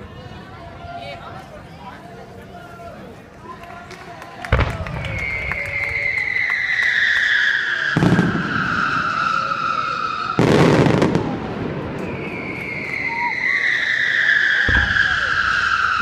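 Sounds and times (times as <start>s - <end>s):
firework bangs: 4.5s - 16.0s
falling firework whistle: 4.6s - 16.0s.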